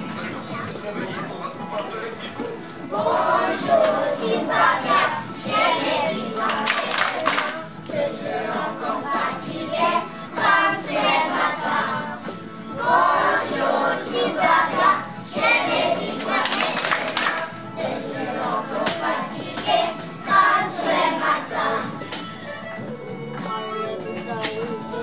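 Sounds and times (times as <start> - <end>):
music: 0.0 - 25.0
children singing together: 2.8 - 22.2
hand clapping: 6.3 - 7.9, 16.2 - 17.5, 22.1 - 22.3.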